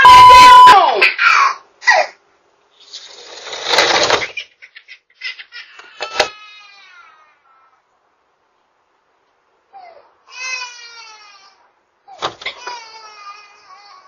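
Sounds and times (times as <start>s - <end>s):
high whine falling in pitch: 0.0s - 0.8s.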